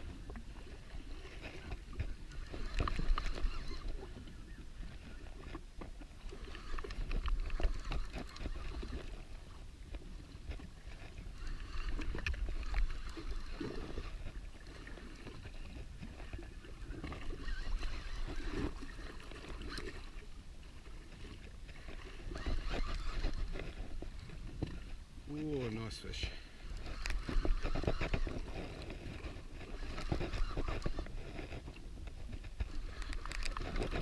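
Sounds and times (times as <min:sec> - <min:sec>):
water sloshing against hull: 0:00.0 - 0:34.0
fishing reel clicks: 0:06.4 - 0:09.2, 0:22.1 - 0:24.0, 0:26.7 - 0:28.8, 0:29.6 - 0:31.3, 0:32.6 - 0:34.0.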